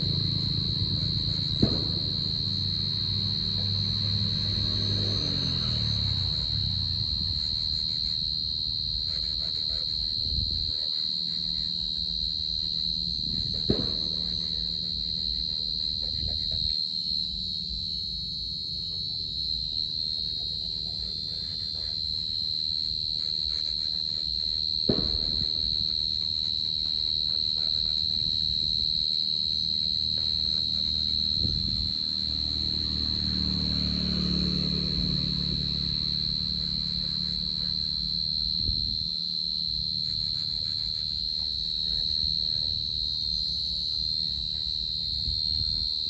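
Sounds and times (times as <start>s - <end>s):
low hum: 0.0s - 19.4s
cricket trilling: 0.0s - 46.0s.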